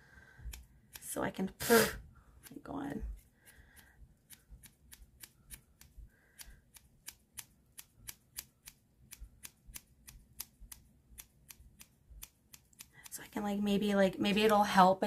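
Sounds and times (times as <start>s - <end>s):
scissors snipping hair: 0.4s - 1.6s, 2.4s - 14.6s.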